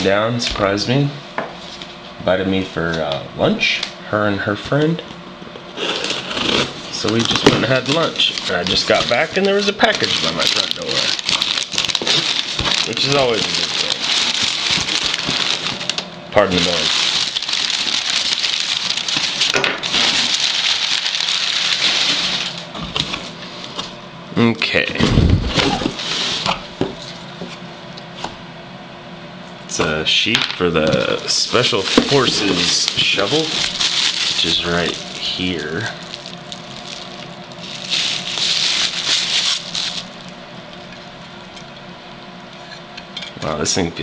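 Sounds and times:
bubble wrap crinkling: 0:05.8 - 0:23.8, 0:30.9 - 0:41.0
packing paper rustling: 0:05.8 - 0:23.9, 0:25.2 - 0:27.2, 0:30.8 - 0:41.0.

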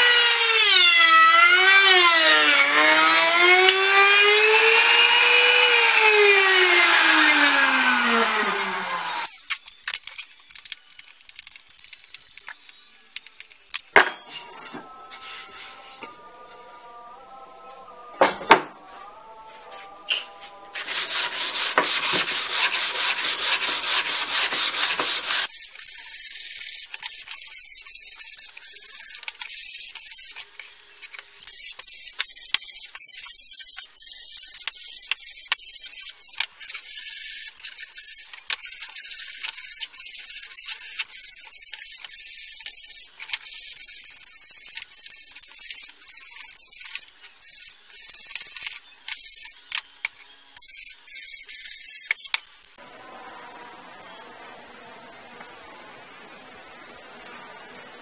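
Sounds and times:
sandpaper rubbing on wood: 0:19.8 - 0:30.7.

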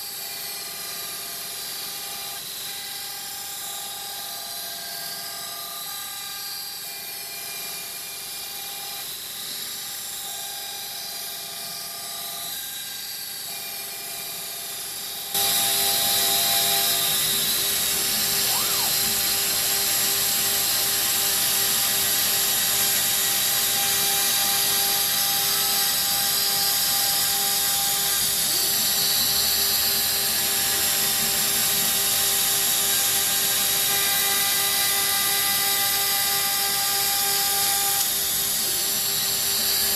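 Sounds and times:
router spindle motor running: 0:00.0 - 0:39.9
vacuum running: 0:15.4 - 0:20.0.

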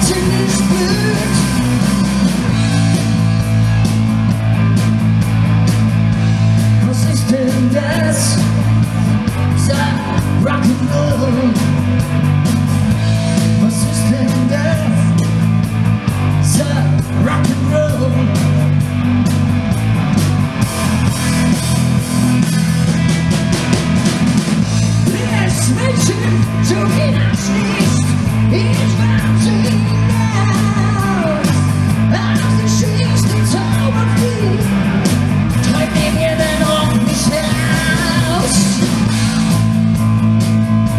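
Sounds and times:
man singing: 0:00.0 - 0:02.0, 0:06.8 - 0:08.7, 0:09.4 - 0:11.8, 0:13.4 - 0:15.3, 0:16.4 - 0:18.7, 0:25.0 - 0:34.8, 0:35.6 - 0:39.1
bass line: 0:00.0 - 0:40.9
electric guitars: 0:00.0 - 0:40.9.

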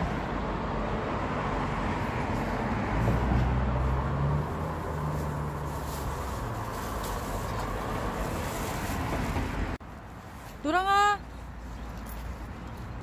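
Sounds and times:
car engine low hum: 0:00.0 - 0:08.7
rush of passing cars: 0:00.0 - 0:13.0.

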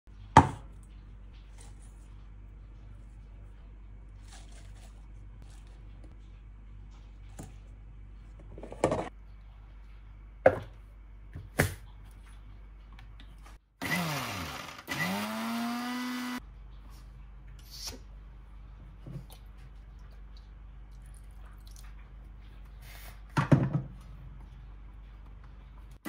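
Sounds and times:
mixer grinder motor whining: 0:13.8 - 0:16.4.

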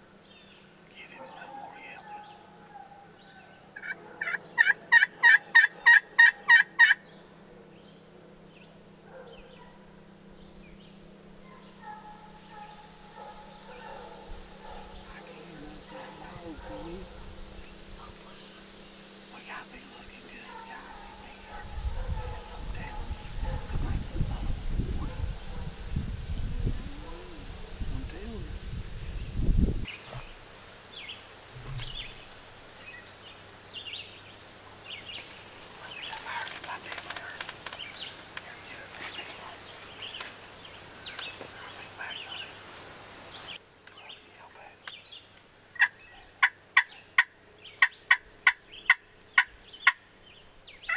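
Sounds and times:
faint drawn-out whining call: 0:00.0 - 0:23.8
faint songbirds chirping: 0:00.0 - 0:50.9
soft low bump: 0:31.5 - 0:32.3.

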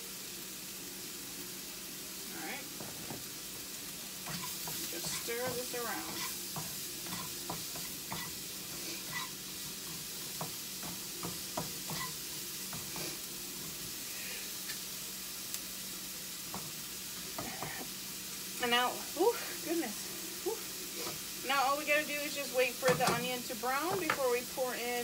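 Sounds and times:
onions sizzling in a pan: 0:00.0 - 0:25.0
spatula scraping and tapping pan: 0:04.2 - 0:13.8, 0:16.5 - 0:17.9, 0:22.8 - 0:24.3.

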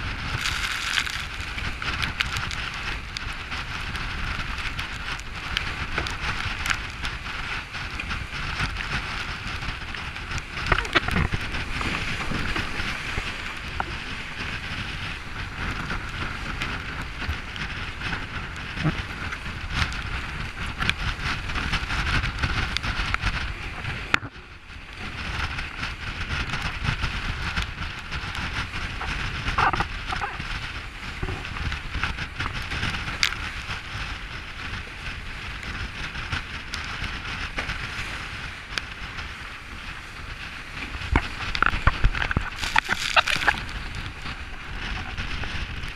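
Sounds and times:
low rumble: 0:00.0 - 0:25.0, 0:36.5 - 0:45.9
water rushing along hull: 0:00.0 - 0:45.9
wind buffeting microphone: 0:00.0 - 0:45.9.

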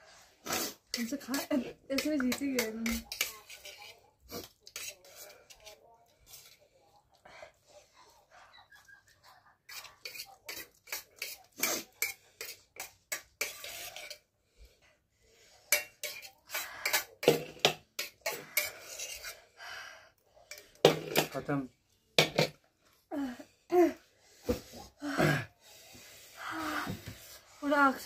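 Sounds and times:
fork scraping steel plate: 0:00.6 - 0:06.6, 0:09.7 - 0:14.2, 0:15.7 - 0:19.5.

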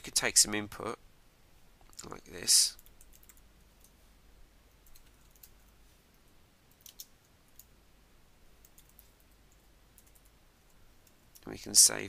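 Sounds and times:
keystrokes on a computer keyboard: 0:02.8 - 0:04.0, 0:04.8 - 0:05.6, 0:06.7 - 0:07.7, 0:08.6 - 0:10.4.

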